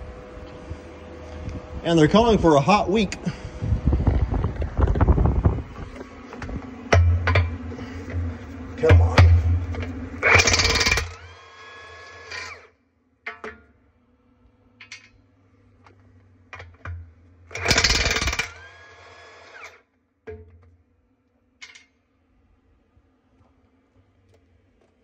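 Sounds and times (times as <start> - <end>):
impact wrench spinning whine: 1.8 - 12.8, 16.5 - 19.9
impact wrench hammering: 6.9 - 12.5, 16.6 - 18.8.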